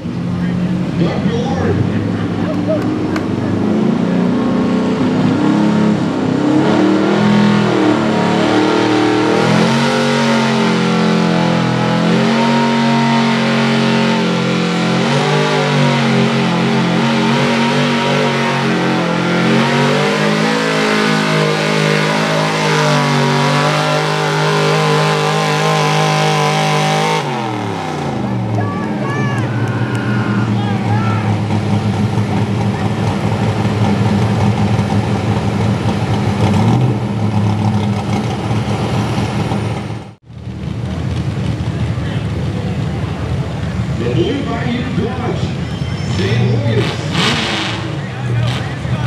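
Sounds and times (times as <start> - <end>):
truck engine running under load: 29.4 - 46.4.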